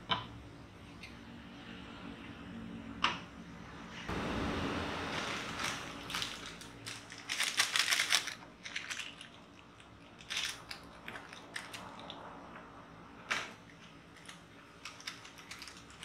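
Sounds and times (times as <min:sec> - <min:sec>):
crackling rustle: 0:04.1 - 0:12.3, 0:13.3 - 0:16.0.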